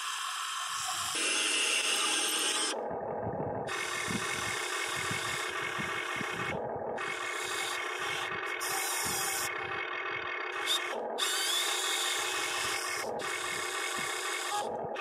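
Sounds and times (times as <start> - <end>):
toy excavator motors whirring: 0.0 - 2.8, 3.6 - 15.0.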